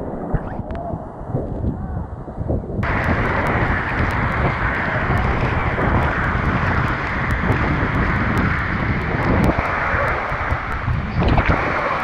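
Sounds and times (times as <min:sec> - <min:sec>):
waterfall rushing into pool: 0:02.8 - 0:12.0.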